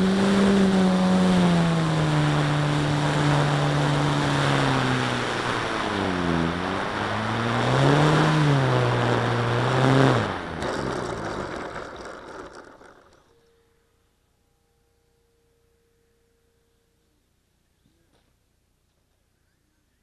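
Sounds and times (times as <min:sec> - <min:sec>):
model aircraft electric motor hum: 0:00.0 - 0:13.6.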